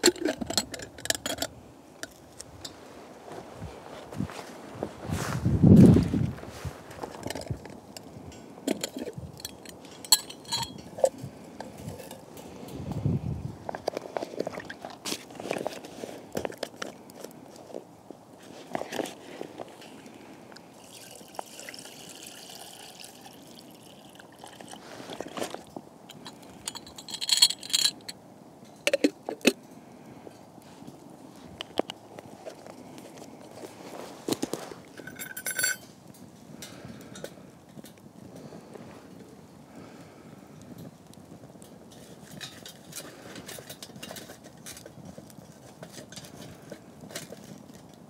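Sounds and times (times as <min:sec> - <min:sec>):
metal lid clinking: 0:00.0 - 0:02.2, 0:08.7 - 0:12.2
wood fire crackling: 0:00.0 - 0:28.8, 0:29.6 - 0:48.0
water pouring into kettle: 0:20.8 - 0:25.2.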